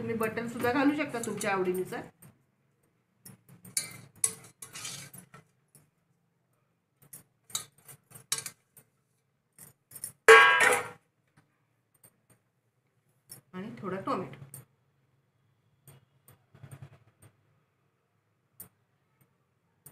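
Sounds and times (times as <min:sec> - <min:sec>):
bangles jingling against metal pot: 0:00.1 - 0:02.3, 0:03.2 - 0:05.9, 0:07.0 - 0:08.9, 0:09.5 - 0:10.9.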